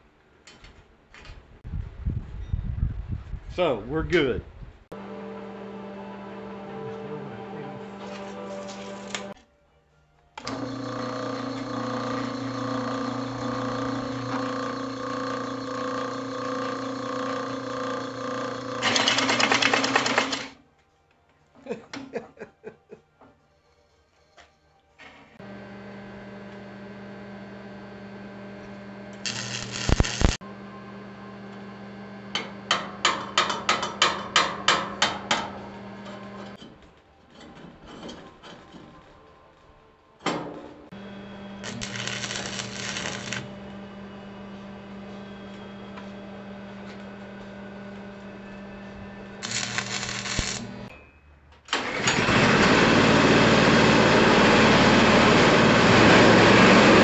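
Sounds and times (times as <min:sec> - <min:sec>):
drill press motor humming: 0:10.4 - 0:20.5, 0:25.4 - 0:32.7, 0:41.0 - 0:50.9
hole saw cutting wood: 0:10.4 - 0:20.5
small gas engine running: 0:10.4 - 0:20.5, 0:51.8 - 0:57.0.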